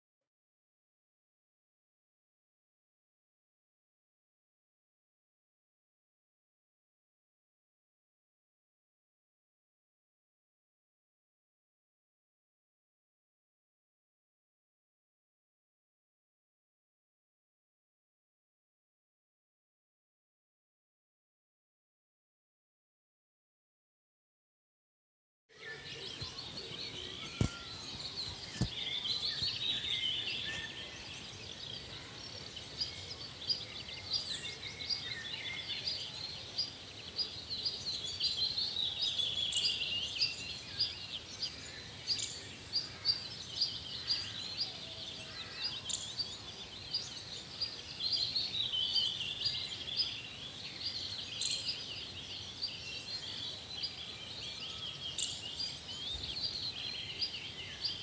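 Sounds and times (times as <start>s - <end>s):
small birds chirping: 25.5s - 58.0s.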